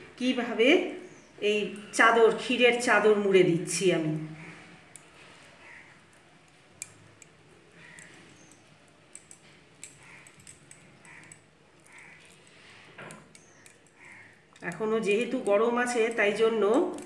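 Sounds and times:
small sharp clicks: 4.9 - 17.0.

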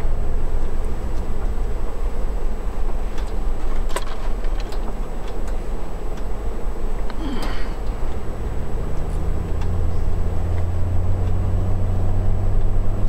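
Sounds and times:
car engine and road rumble: 0.0 - 13.0
heater fan running: 0.0 - 13.0
small clicks and knocks: 3.1 - 6.3.

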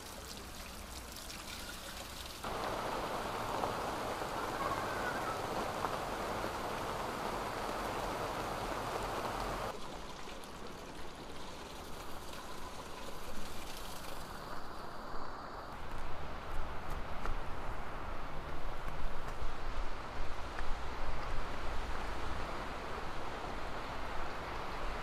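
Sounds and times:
running water: 0.0 - 15.0
heavy rain falling: 2.4 - 9.8.

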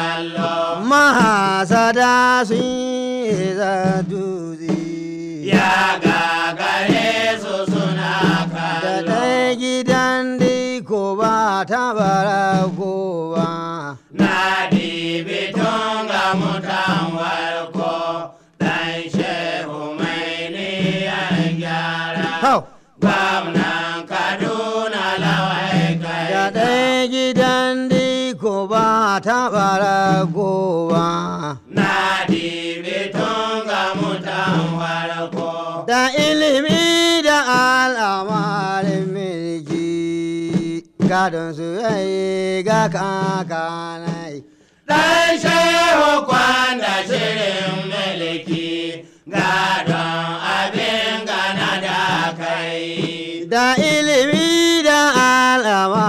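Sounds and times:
person chanting melodically: 0.0 - 56.0.

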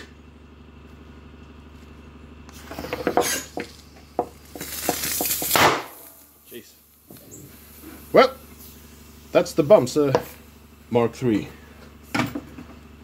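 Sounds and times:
tube bursting with a bang: 4.8 - 6.0.

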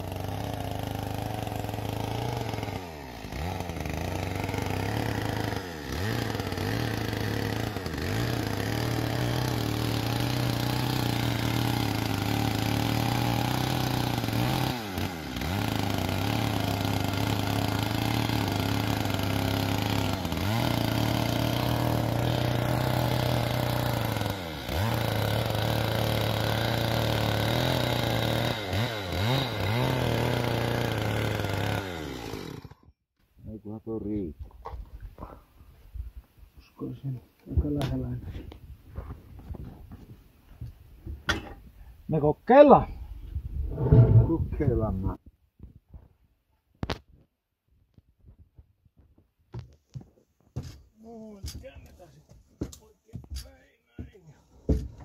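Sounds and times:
chainsaw cutting lumber: 0.0 - 32.9, 54.5 - 55.0.

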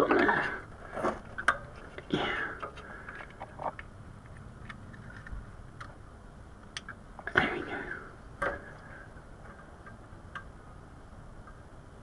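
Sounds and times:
rustling of wiring: 0.0 - 7.6.

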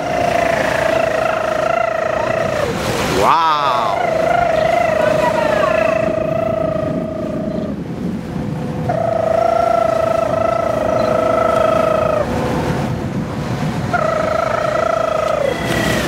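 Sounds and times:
long high wobbling tones: 0.0 - 7.8, 8.8 - 13.0, 13.8 - 16.0
ship engine and water rush: 0.0 - 16.0.

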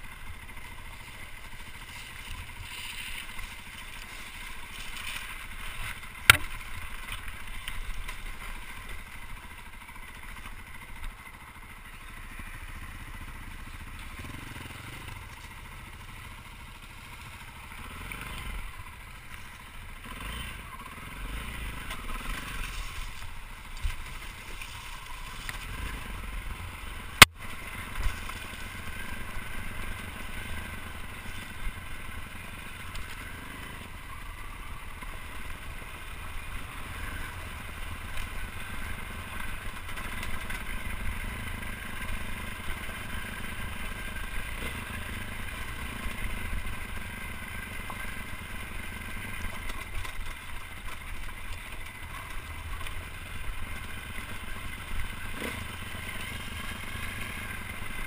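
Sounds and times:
dirt bike engine running: 0.0 - 58.0
clatter from bumpy ground: 37.8 - 58.0.

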